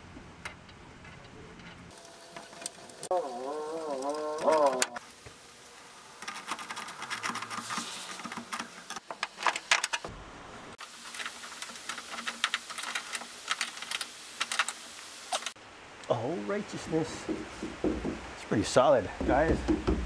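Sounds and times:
metal bolts clicking and rattling: 0.4 - 2.8.

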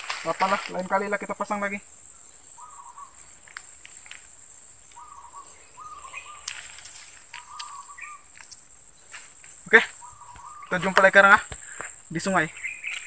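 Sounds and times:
high-pitched insect chirring: 0.0 - 13.0
short calls: 0.0 - 13.0.

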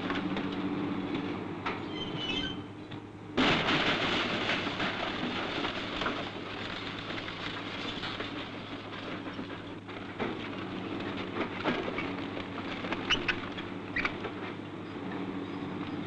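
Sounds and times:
heavy machine engine running: 0.0 - 16.0
short high squeaks: 1.8 - 2.7
debris knocking and clattering: 3.4 - 14.4.

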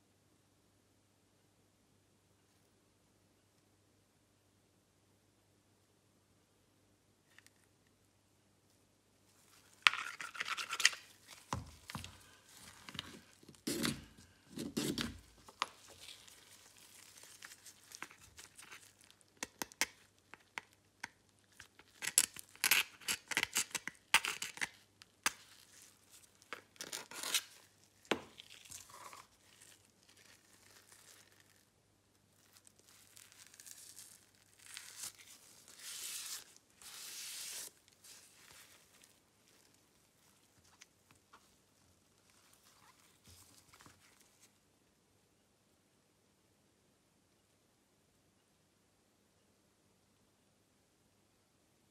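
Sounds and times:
metal tool scratching plastic: 9.8 - 19.6.

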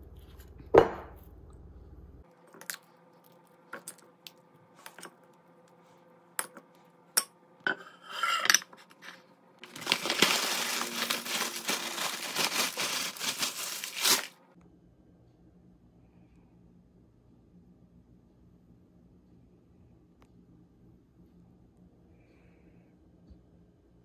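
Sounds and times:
metal spoon scraping glass bowl: 7.7 - 9.2
chips pouring onto a platter: 9.6 - 14.3
paper bag crinkling: 9.6 - 14.5.

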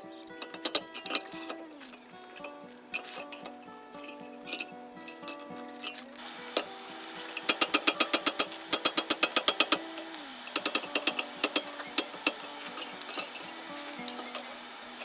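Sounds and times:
hammer striking steel on anvil: 7.4 - 9.9.

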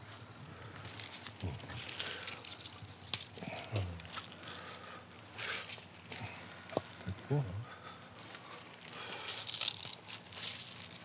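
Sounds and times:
person murmuring: 3.4 - 4.1, 7.1 - 7.8.

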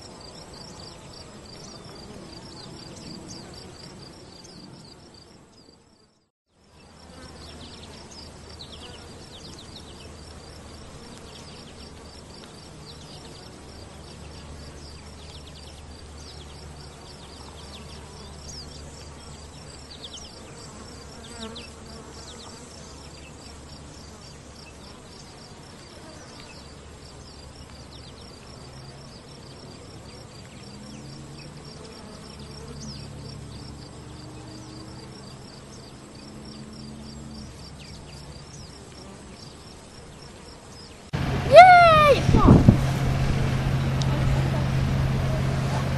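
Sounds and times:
low hum: 41.2 - 45.9.

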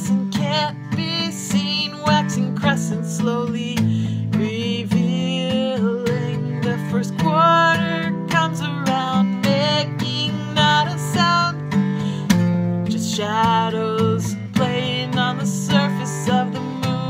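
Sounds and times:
strummed acoustic guitar: 0.0 - 17.0
woman singing: 0.0 - 17.0.

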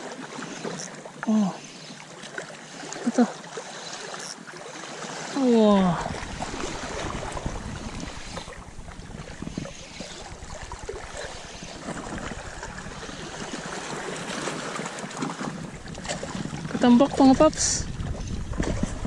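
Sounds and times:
waves washing against rocks: 4.7 - 19.0
wind buffeting microphone: 5.6 - 19.0.

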